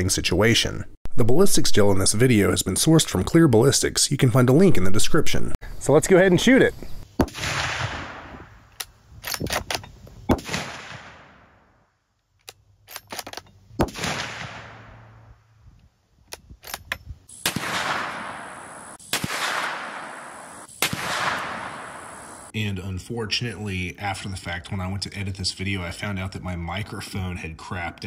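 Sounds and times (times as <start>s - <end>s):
rifle shots: 7.2s - 8.6s, 9.2s - 11.6s, 13.8s - 15.2s, 17.3s - 22.5s.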